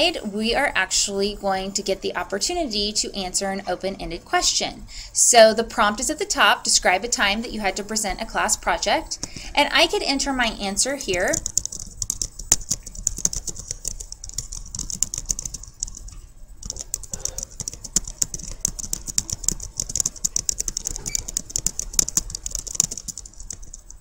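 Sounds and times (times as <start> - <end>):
typing on computer keyboard: 9.1 - 24.0.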